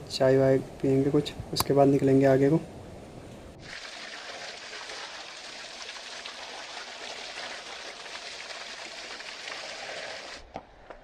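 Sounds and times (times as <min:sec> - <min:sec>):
water gushing and splashing: 0:03.6 - 0:10.4.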